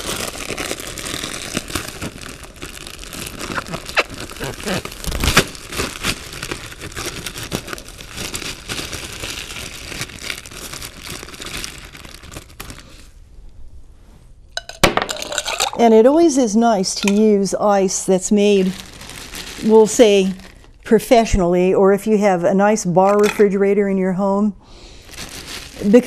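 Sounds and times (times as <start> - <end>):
plastic bag crinkling: 0.0 - 13.1, 18.4 - 20.8, 25.0 - 26.0.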